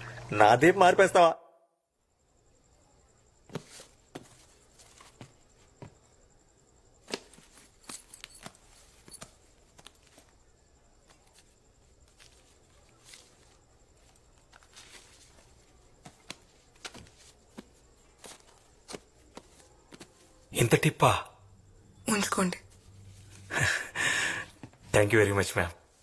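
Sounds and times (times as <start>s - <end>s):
paper rustling and clicks: 11.0s - 20.3s.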